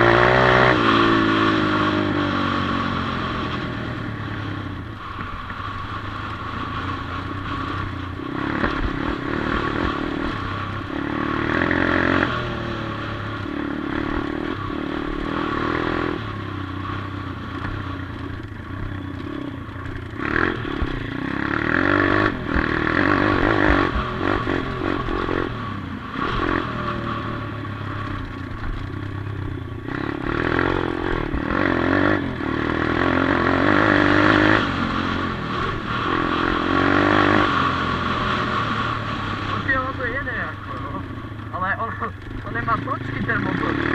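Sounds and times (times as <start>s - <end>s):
dirt bike engine revving: 0.0s - 43.9s
bike rattling and clattering: 13.3s - 25.6s, 26.2s - 37.9s, 38.6s - 43.9s.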